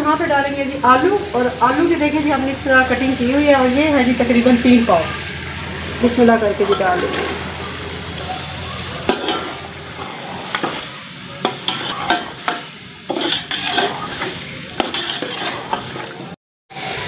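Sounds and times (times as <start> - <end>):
potatoes sizzling in oil: 0.0 - 17.0
metal spoon scraping pot: 9.1 - 10.8, 11.4 - 16.3.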